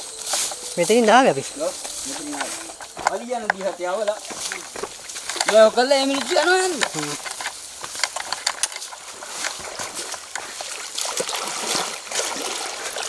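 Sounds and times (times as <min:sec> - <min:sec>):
water splashing and trickling: 0:00.0 - 0:13.0
small splashes and clicks: 0:03.0 - 0:13.0.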